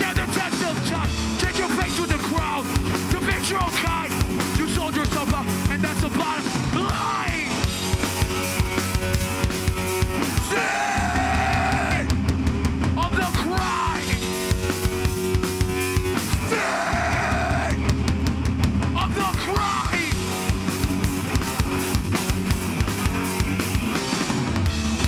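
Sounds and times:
punk band playing live: 0:00.0 - 0:25.0
shouted vocals: 0:06.7 - 0:07.6, 0:10.4 - 0:12.1, 0:13.1 - 0:14.2, 0:16.4 - 0:17.8, 0:19.0 - 0:20.2.

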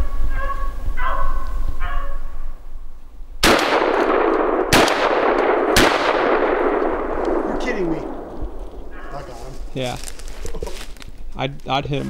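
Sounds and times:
dogs baying: 0:00.2 - 0:02.4, 0:08.6 - 0:09.7
shotgun blasts with echo: 0:03.4 - 0:09.0.

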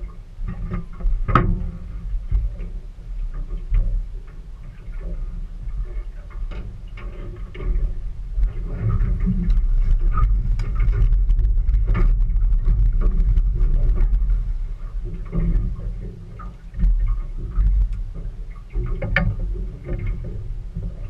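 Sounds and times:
steady low rumble: 0:00.0 - 0:21.0
shark thrashing and splashing: 0:07.2 - 0:21.0.

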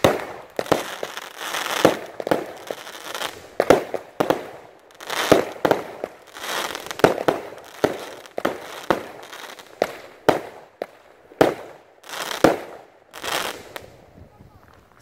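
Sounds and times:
fireworks bangs: 0:00.0 - 0:15.0
fireworks crackling and hissing: 0:00.0 - 0:15.0.

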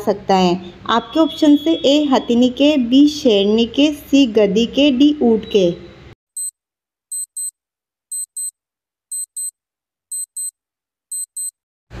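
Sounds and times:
high-pitched electronic ticks: 0:06.4 - 0:11.6.

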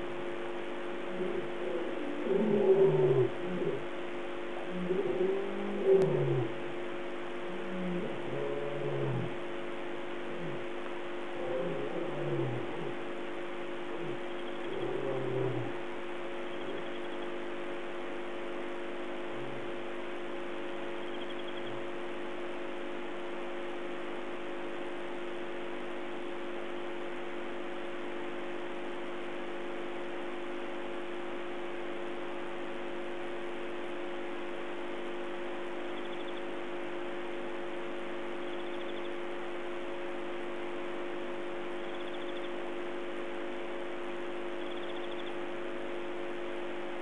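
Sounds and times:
constant hum: 0:00.0 - 0:47.0
steady hiss: 0:00.0 - 0:47.0
lion grunting: 0:01.1 - 0:03.9, 0:04.6 - 0:06.6, 0:07.4 - 0:09.5, 0:10.2 - 0:13.2, 0:13.8 - 0:15.8, 0:19.1 - 0:19.8
lion roaring: 0:01.1 - 0:03.9, 0:04.6 - 0:06.6, 0:07.5 - 0:09.4, 0:10.2 - 0:13.2, 0:13.9 - 0:15.8.

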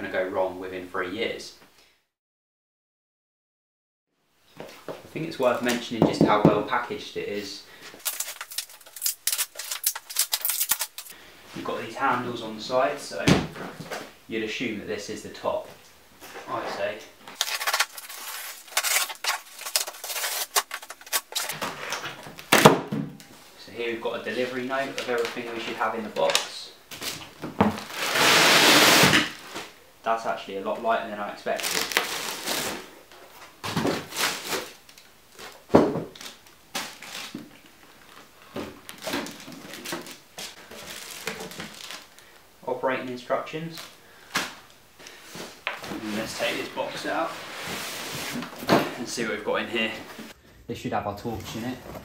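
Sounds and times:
plastic wrap rustling: 0:07.7 - 0:11.2, 0:17.2 - 0:22.5, 0:24.2 - 0:29.8, 0:31.5 - 0:42.4
packing tape ripping: 0:08.0 - 0:11.2, 0:17.3 - 0:22.7, 0:26.9 - 0:29.7, 0:31.5 - 0:32.8, 0:34.0 - 0:35.5, 0:36.2 - 0:37.5, 0:38.9 - 0:42.3
cardboard scraping: 0:16.3 - 0:22.2, 0:27.7 - 0:29.8, 0:45.3 - 0:49.0, 0:51.2 - 0:52.0.

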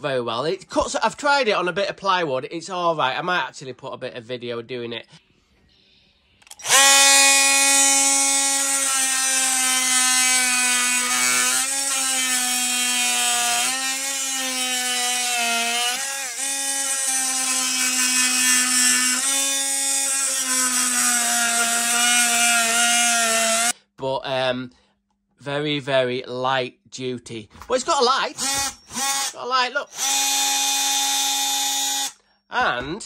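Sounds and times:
oscillating multi-tool cutting wood: 0:06.5 - 0:23.7, 0:28.3 - 0:32.2.

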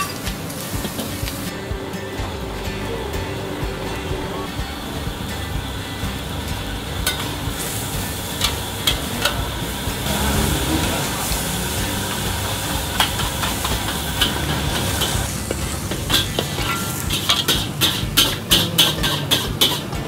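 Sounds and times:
noodles sizzling in a wok: 0:04.5 - 0:20.0
metal spatula clanging on wok: 0:06.8 - 0:10.0, 0:11.0 - 0:20.0.

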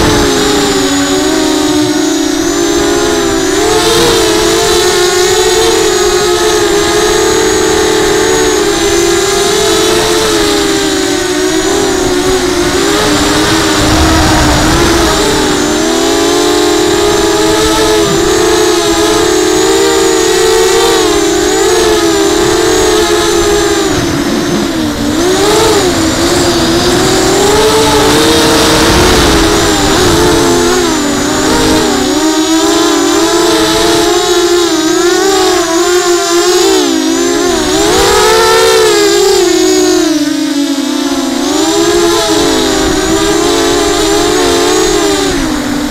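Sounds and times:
quadcopter motors whining: 0:00.0 - 0:45.9
wind buffeting microphone: 0:10.9 - 0:32.4.

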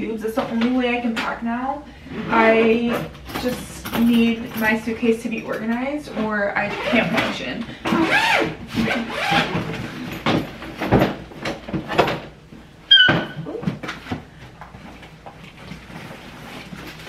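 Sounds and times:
brief squeak: 0:12.9 - 0:13.5
rummaging in suitcase: 0:13.6 - 0:17.0.

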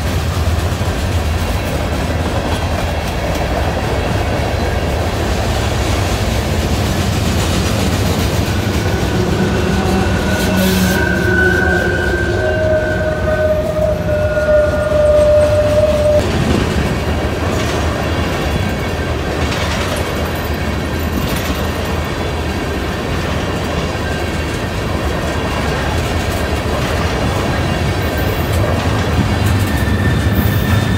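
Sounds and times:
freight train rolling past: 0:00.0 - 0:30.9
wheels clattering on rail: 0:00.0 - 0:30.9
steady high tone: 0:05.7 - 0:16.2.

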